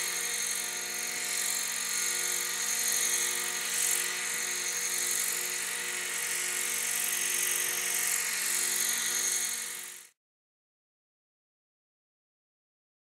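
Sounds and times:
model helicopter hovering: 0.0s - 10.2s.

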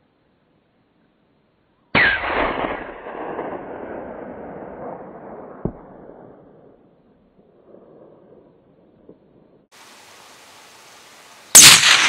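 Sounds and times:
rifle shot echoing: 2.0s - 6.9s, 11.6s - 12.0s.

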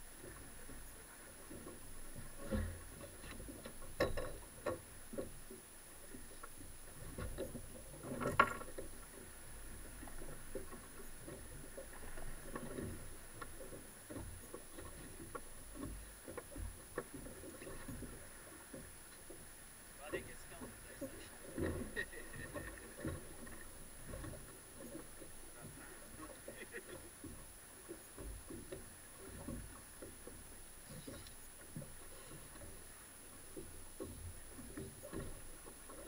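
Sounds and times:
waves lapping against boat hull: 0.0s - 36.0s.

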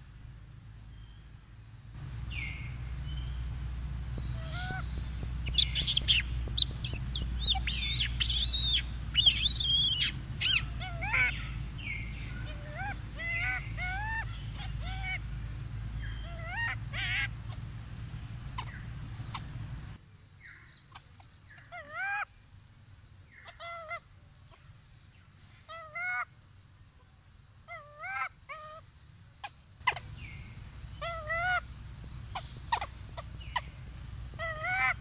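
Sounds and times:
steady low hum: 0.0s - 21.7s, 28.8s - 35.0s
infant monkey squealing: 4.4s - 4.8s, 5.4s - 11.5s, 12.4s - 15.2s, 16.2s - 17.6s, 18.6s - 19.5s, 20.9s - 22.3s, 23.5s - 24.0s, 27.7s - 28.8s, 29.4s - 30.3s, 31.0s - 31.6s, 32.3s - 35.0s.

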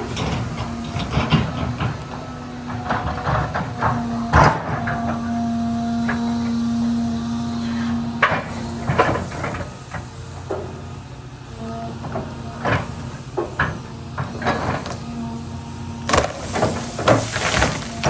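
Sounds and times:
diesel engine humming: 0.0s - 18.0s
tree limbs cracking: 16.0s - 18.0s.

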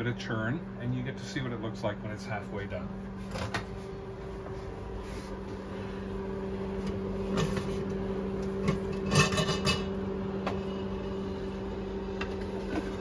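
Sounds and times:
steady low hum: 0.0s - 13.0s
metal pan scraping on rack: 9.0s - 9.9s.

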